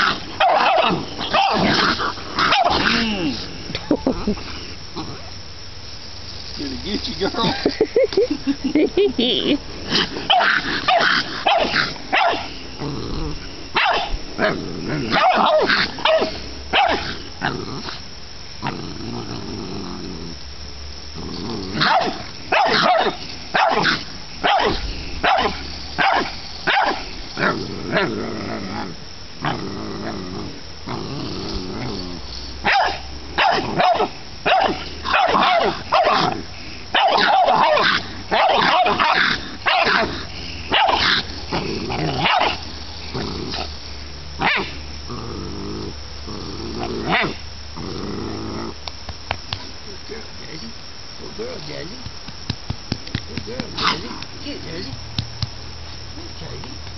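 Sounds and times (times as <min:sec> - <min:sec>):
dogs barking sharply: 0:00.0 - 0:02.9, 0:09.9 - 0:12.5, 0:13.8 - 0:14.2, 0:15.1 - 0:17.2, 0:21.8 - 0:27.1, 0:32.6 - 0:41.3, 0:42.2 - 0:42.6, 0:44.4 - 0:44.8
dogs growling low: 0:00.0 - 0:05.3, 0:09.7 - 0:20.4, 0:21.1 - 0:22.4, 0:27.2 - 0:33.8, 0:34.9 - 0:48.9.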